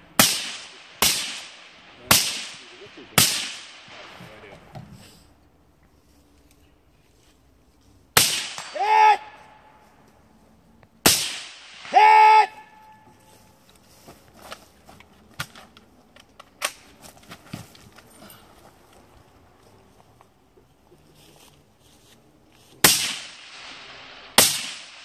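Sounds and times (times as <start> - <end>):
rifle shots: 0.2 - 4.2, 8.2 - 8.8, 11.0 - 12.0, 22.8 - 25.0.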